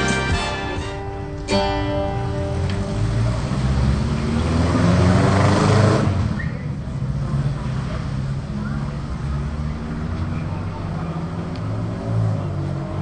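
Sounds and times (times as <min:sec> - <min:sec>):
acoustic guitar chord strummed: 0:00.0 - 0:03.3
low rumbling noise: 0:00.8 - 0:13.0.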